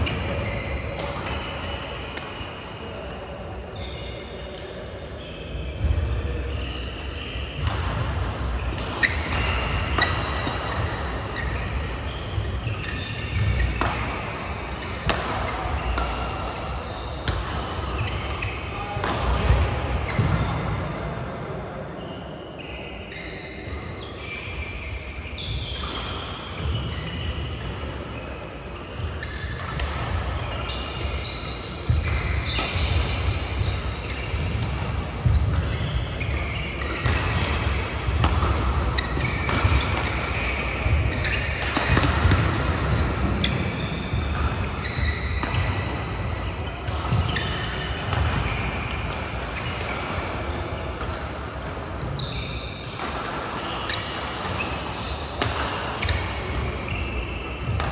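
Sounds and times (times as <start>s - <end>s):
shoes squeaking on court: 0.0s - 3.0s, 5.2s - 20.6s, 22.0s - 51.3s, 52.0s - 57.9s
rackets striking shuttlecocks: 7.0s - 12.6s, 13.2s - 18.4s, 29.0s - 52.2s, 52.8s - 57.9s.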